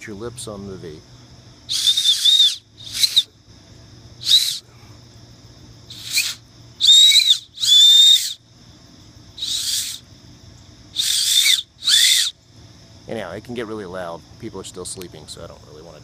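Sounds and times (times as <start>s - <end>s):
shrill acorn-cap whistle blasts: 1.7s - 3.3s, 4.2s - 4.6s, 5.9s - 8.4s, 9.4s - 10.0s, 11.0s - 12.4s.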